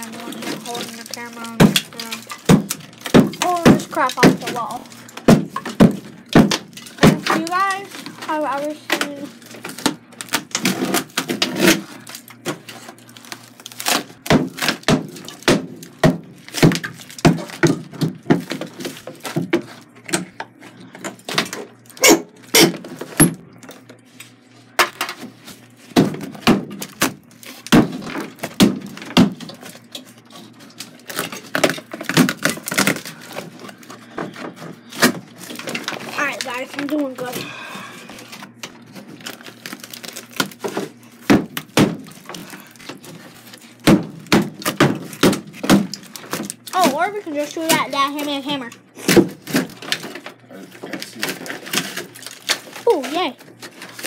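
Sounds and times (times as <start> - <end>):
tiles knocking and cracking: 0.0 - 13.1, 13.8 - 21.6.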